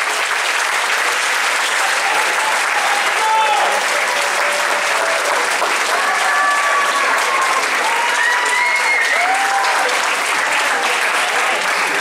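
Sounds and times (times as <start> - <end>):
audience clapping: 0.0 - 12.0.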